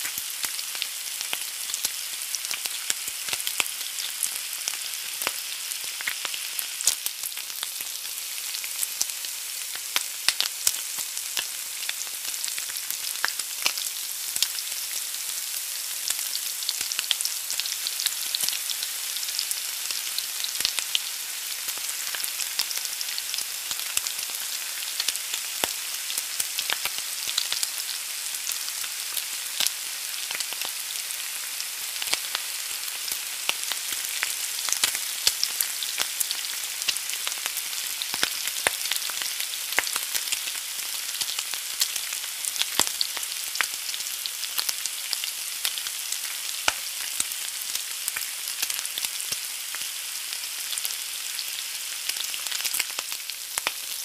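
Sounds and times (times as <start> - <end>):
egg sizzling in a pan: 0.0 - 54.0
small crackles and pops: 33.1 - 43.8, 44.5 - 49.9, 52.2 - 53.9.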